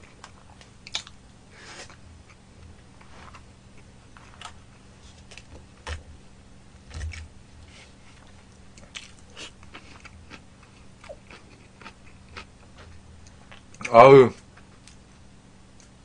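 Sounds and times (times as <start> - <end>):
person chewing and crunching: 0.1 - 2.4, 8.1 - 15.0.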